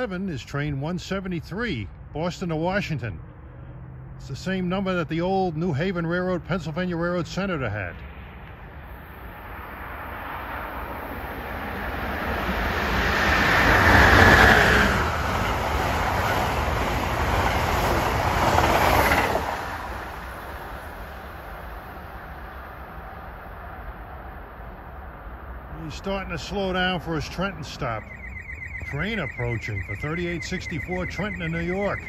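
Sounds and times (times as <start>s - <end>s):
passenger train passing at speed: 8.1s - 32.0s.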